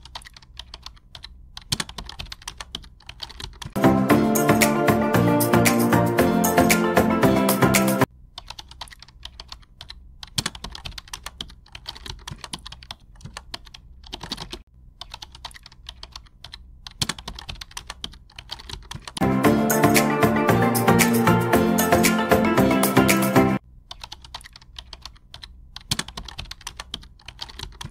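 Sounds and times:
computer keyboard typing: 0.0 - 4.9, 5.7 - 20.2, 23.9 - 27.9
background music: 3.8 - 8.1, 19.2 - 23.6.

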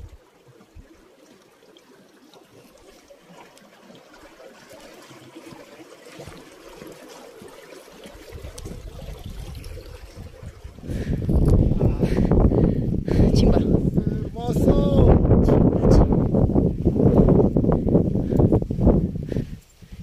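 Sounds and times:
stream trickling over rocks: 0.0 - 20.0.

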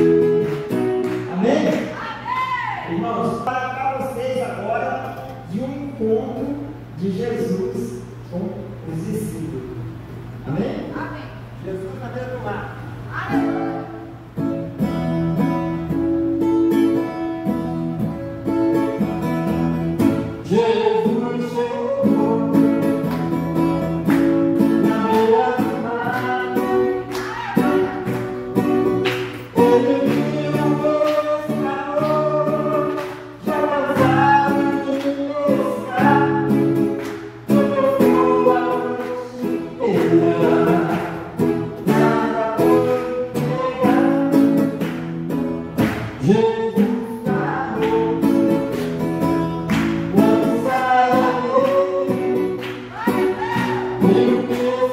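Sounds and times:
acoustic guitar strumming: 0.0 - 8.0, 12.9 - 54.9
man singing: 20.3 - 23.2, 24.5 - 28.8, 29.4 - 44.8, 46.1 - 48.8, 49.8 - 54.9.

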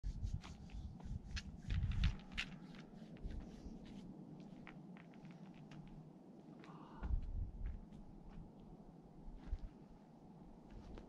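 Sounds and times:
hands and shoes scuffing rock: 0.3 - 6.0
low rumble: 7.0 - 8.5.

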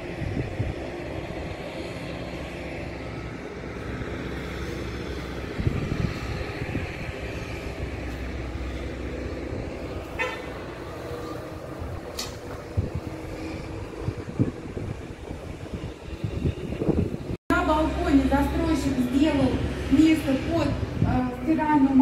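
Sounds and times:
road traffic rumble: 0.0 - 22.0
car horn toot: 10.1 - 10.6.

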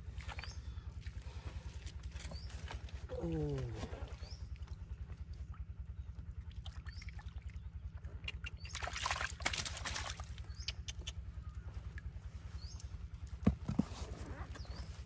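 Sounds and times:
hands sloshing in muddy water: 0.0 - 12.6
low pulsing hum: 0.0 - 15.0.

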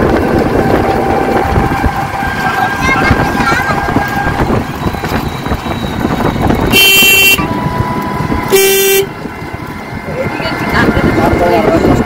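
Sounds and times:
vehicle rumbling on paved road: 0.0 - 12.0
vehicle horn beeps: 6.6 - 7.6, 8.5 - 9.2.

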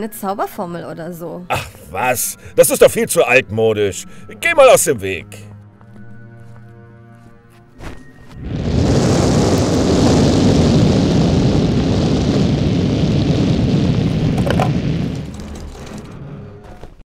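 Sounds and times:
rush of flames: 8.3 - 16.2.

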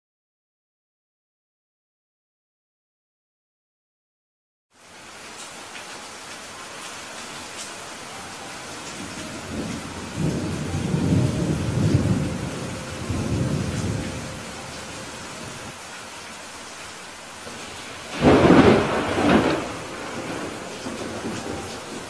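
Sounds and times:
steady rain: 4.7 - 22.0
rolling thunder rumble: 8.7 - 15.8, 17.4 - 22.0
loud thunderclap: 9.5 - 14.3, 17.6 - 22.0.

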